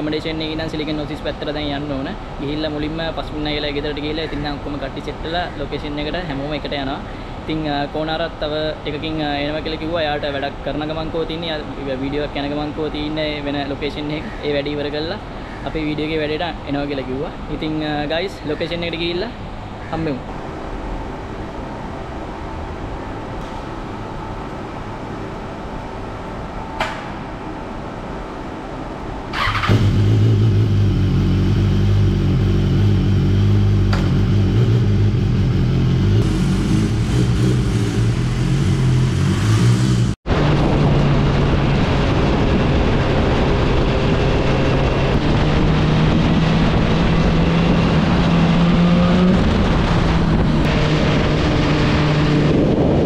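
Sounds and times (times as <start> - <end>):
motorcycle engine at road speed: 29.4 - 53.0.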